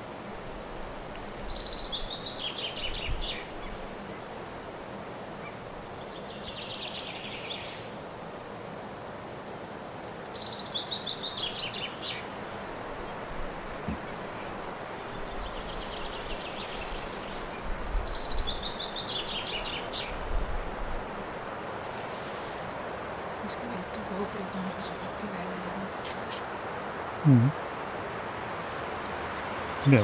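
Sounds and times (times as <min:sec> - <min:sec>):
faint outdoor hiss: 0:00.0 - 0:30.0
songbird singing: 0:00.9 - 0:08.0, 0:09.8 - 0:27.7, 0:28.4 - 0:30.0.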